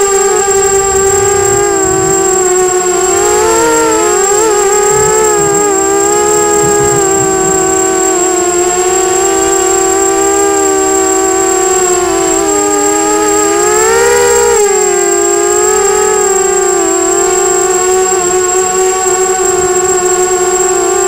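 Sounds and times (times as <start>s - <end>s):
steady high-pitched tone: 0.0s - 16.8s
quadcopter motors whining: 0.0s - 21.0s.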